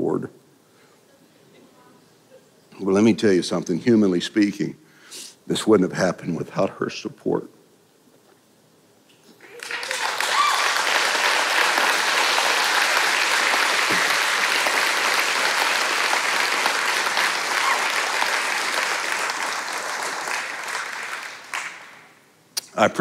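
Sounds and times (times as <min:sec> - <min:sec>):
congregation applauding: 0:09.4 - 0:22.2.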